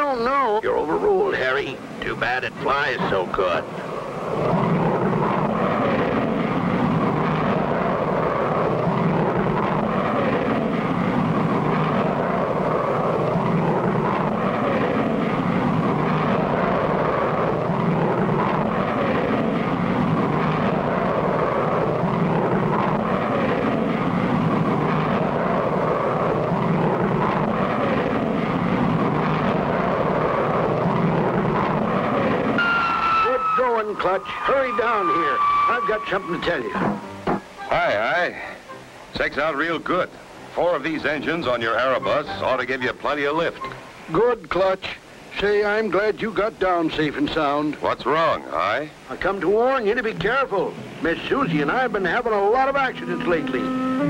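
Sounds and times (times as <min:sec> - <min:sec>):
cartoon jet engine rushing: 0:00.0 - 0:38.0, 0:50.5 - 0:54.0.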